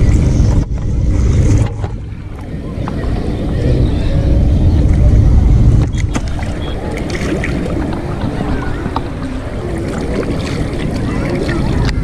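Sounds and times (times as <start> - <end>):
wind buffeting the microphone: 0.0 - 12.0
river water sloshing and splashing: 5.8 - 12.0.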